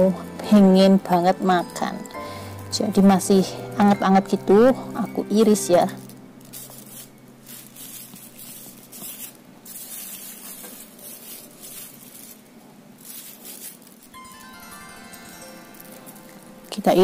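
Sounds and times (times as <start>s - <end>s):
plastic wrap crinkling: 3.8s - 17.0s.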